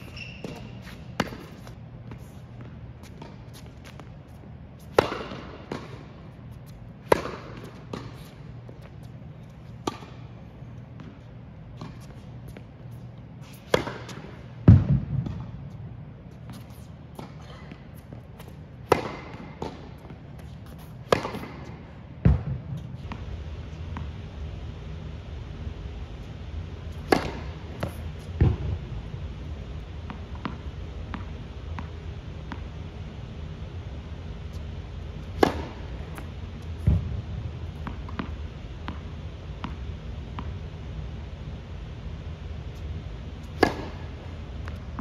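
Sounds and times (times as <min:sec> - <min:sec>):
racket striking tennis ball: 0:00.4 - 0:01.8, 0:04.9 - 0:06.1, 0:07.0 - 0:08.3, 0:09.8 - 0:10.2, 0:13.6 - 0:15.5, 0:16.5 - 0:23.2, 0:27.0 - 0:28.8, 0:35.2 - 0:40.5, 0:43.4 - 0:45.0.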